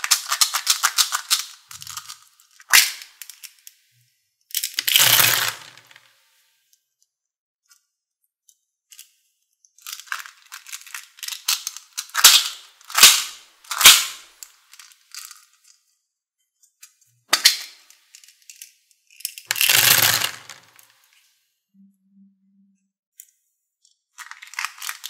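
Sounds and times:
plastic beads poured into tray: 4.7 - 6.0, 19.4 - 21.0, 24.2 - 25.0.

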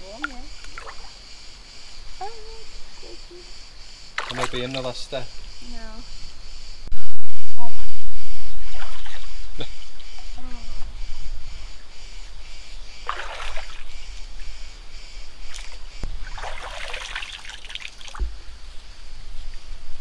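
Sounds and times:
water splashing and trickling: 0.0 - 1.2, 4.2 - 5.1, 8.6 - 10.0, 13.0 - 14.2, 15.5 - 18.4.

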